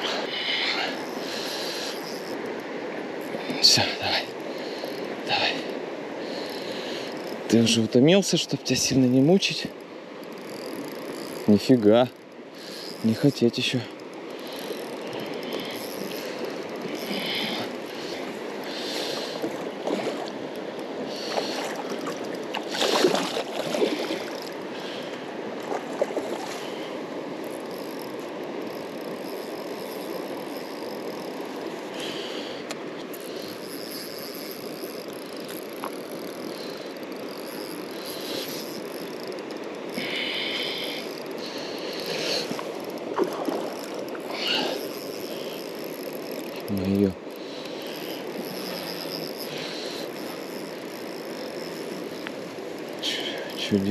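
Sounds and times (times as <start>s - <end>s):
river current rushing: 0.0s - 53.9s
water splashes: 15.4s - 26.9s, 41.4s - 44.8s.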